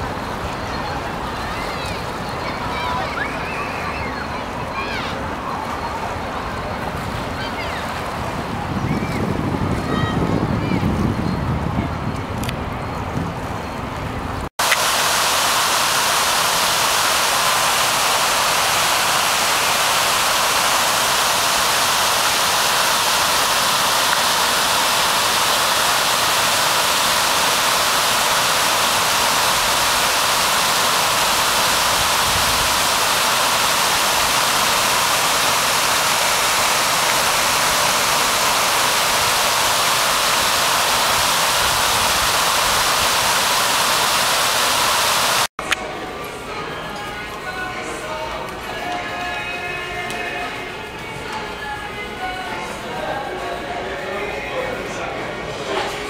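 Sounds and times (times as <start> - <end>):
fountain water splashing: 0.0 - 8.8, 14.6 - 45.5.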